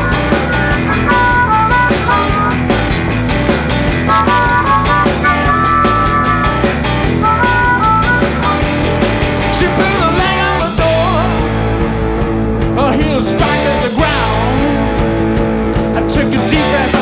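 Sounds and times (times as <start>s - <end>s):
harmonica: 0.0s - 11.0s
live rock band playing: 0.0s - 17.0s.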